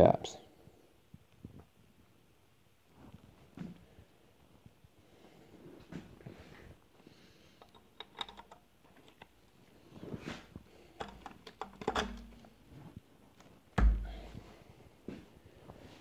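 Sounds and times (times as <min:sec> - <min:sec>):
metal parts clicking and tapping: 0:07.6 - 0:09.3, 0:11.0 - 0:12.5
dull thumps: 0:13.8 - 0:14.5.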